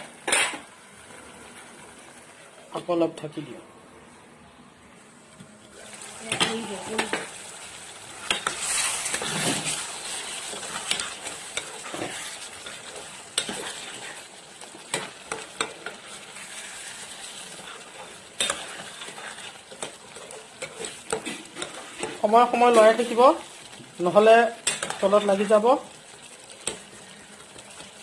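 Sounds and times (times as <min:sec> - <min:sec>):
food sizzling in a pot: 0:00.0 - 0:03.1, 0:05.0 - 0:28.0.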